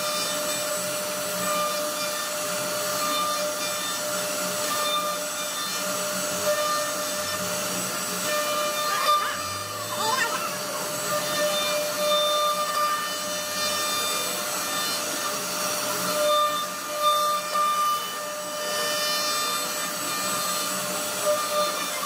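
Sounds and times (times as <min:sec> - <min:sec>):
router bit cutting wood: 0:00.0 - 0:22.0
router spindle whining: 0:00.0 - 0:22.0.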